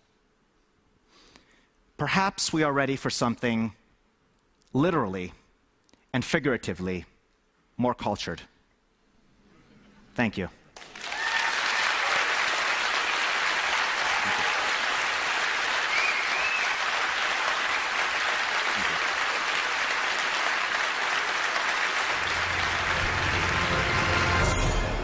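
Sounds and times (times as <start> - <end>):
audience applauding: 10.8 - 25.0
music: 22.2 - 25.0.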